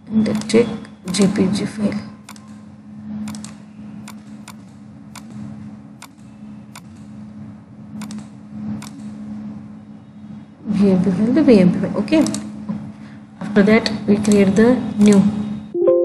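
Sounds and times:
steady low hum: 0.0s - 15.8s
computer mouse clicking: 0.3s - 1.2s, 2.2s - 2.6s, 3.2s - 5.4s, 6.0s - 7.1s, 8.0s - 9.1s.

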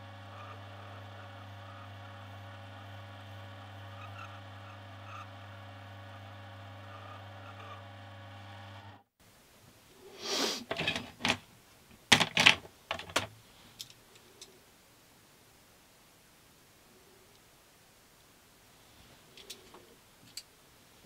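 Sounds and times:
electrical hum with pitched tones: 0.0s - 9.1s
sharp clicks and knocks: 10.7s - 14.5s.

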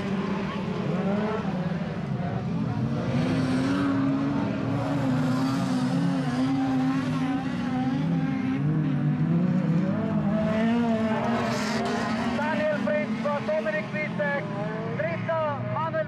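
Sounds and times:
car engines revving: 0.0s - 16.0s.

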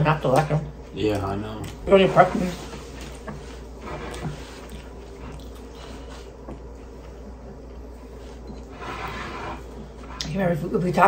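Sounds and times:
low steady hum: 0.0s - 11.0s
chewing pizza crust: 0.3s - 8.7s.

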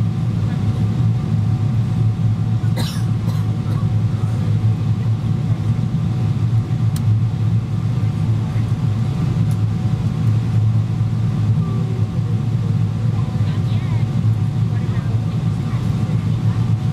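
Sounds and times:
aircraft engine rumble and airflow: 0.0s - 16.9s.

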